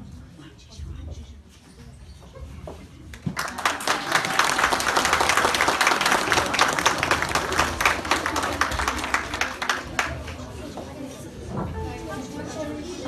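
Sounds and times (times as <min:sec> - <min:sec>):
audience applause: 0:03.3 - 0:10.5.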